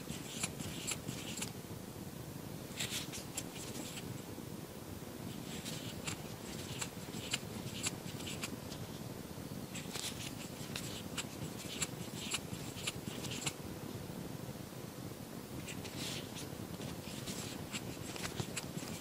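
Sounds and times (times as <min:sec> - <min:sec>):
crochet hook scratching yarn: 0:05.3 - 0:08.5, 0:09.8 - 0:13.6, 0:15.7 - 0:19.0.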